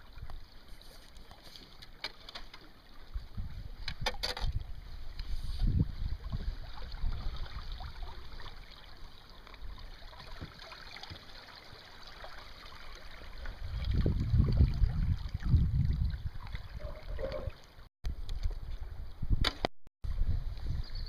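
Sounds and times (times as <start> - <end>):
river water lapping against boat: 0.0 - 18.5
wind buffeting microphone: 3.1 - 7.7, 13.6 - 17.5, 20.1 - 21.0
small splashes: 6.2 - 17.8.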